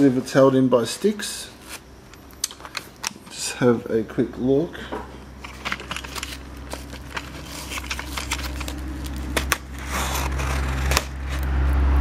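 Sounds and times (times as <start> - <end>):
low steady hum: 0.0 - 12.0
knife cutting cardboard: 5.9 - 11.5.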